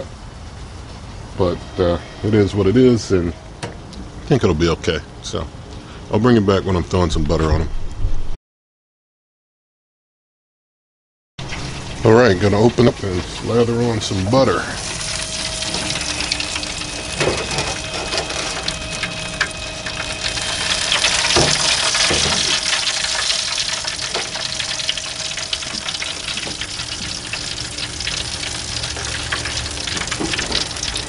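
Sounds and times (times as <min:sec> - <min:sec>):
grill sizzling hiss: 0:00.0 - 0:04.1, 0:11.4 - 0:31.0
faint steady hum: 0:11.5 - 0:31.0.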